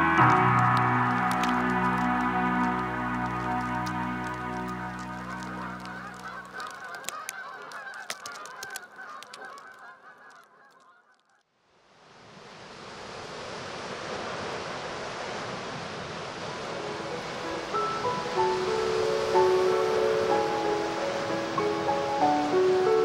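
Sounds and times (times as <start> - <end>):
surf washing on rocky shore: 0.0 - 9.6, 12.0 - 23.0
geese honking: 0.0 - 11.2.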